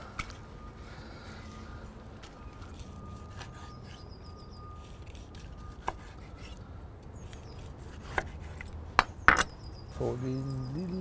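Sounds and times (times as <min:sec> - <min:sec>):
knife slicing meat on board: 0:07.3 - 0:08.7.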